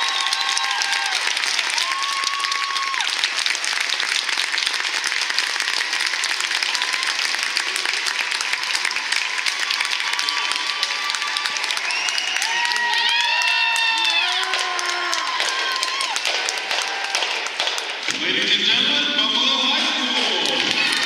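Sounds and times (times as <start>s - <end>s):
person cheering: 0.0s - 3.1s, 10.4s - 17.3s
crowd applauding: 0.0s - 21.0s.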